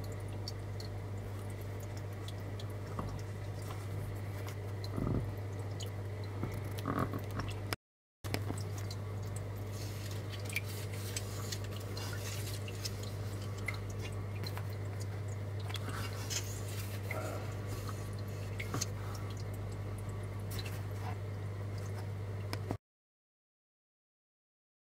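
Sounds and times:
water drips and ticks: 0:00.0 - 0:22.7
steady low hum: 0:00.0 - 0:22.8.

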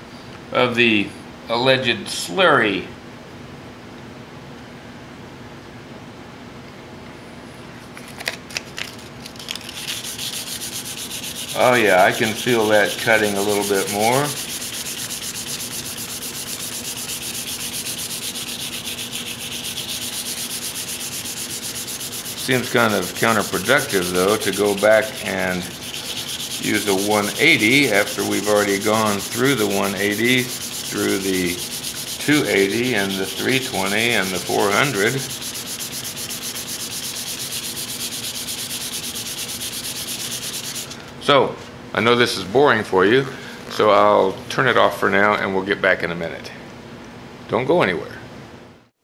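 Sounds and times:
sandpaper rubbing on wood: 0:09.4 - 0:41.0.

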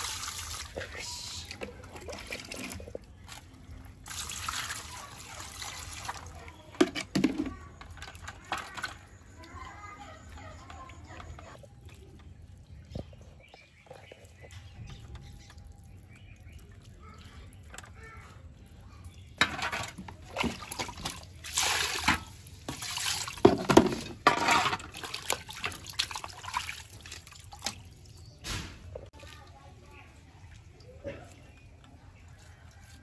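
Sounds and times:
water splashing and sloshing in pan: 0:00.0 - 0:18.5, 0:19.2 - 0:33.0.

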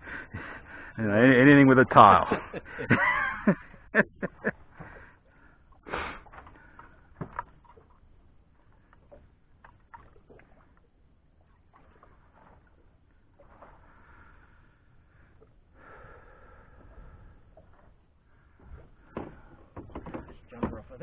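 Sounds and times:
waves lapping against boat hull: 0:00.0 - 0:21.0
light knocks on hull: 0:07.1 - 0:07.9, 0:18.6 - 0:21.0.

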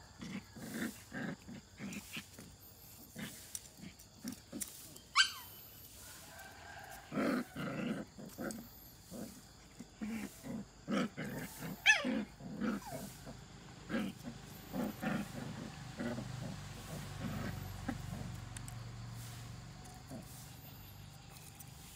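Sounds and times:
puppies growling and yipping: 0:00.0 - 0:21.9
puppy yelping: 0:05.1 - 0:05.6.

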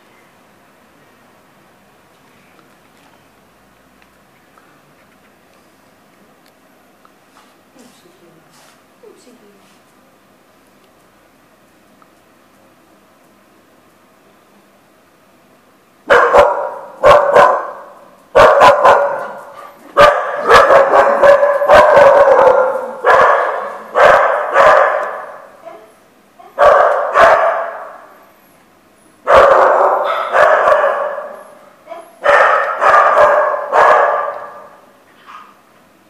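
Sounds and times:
dog barking: 0:16.1 - 0:28.1, 0:29.2 - 0:35.6.

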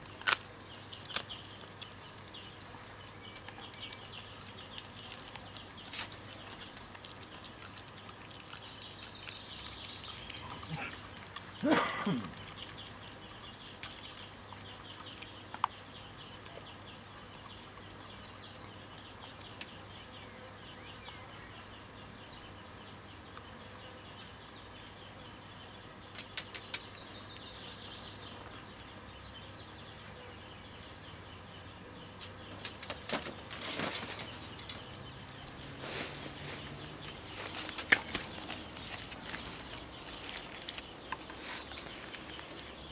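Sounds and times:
dog gnawing on bone: 0:00.0 - 0:11.6, 0:36.9 - 0:42.9.

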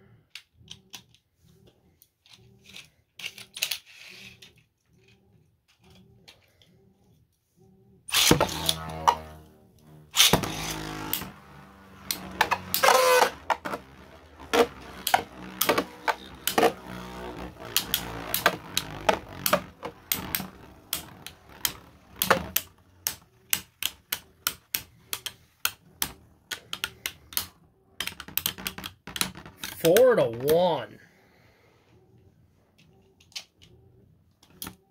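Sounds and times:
faint spinning hum: 0:04.0 - 0:28.0
spinning tops clacking: 0:10.1 - 0:30.6.

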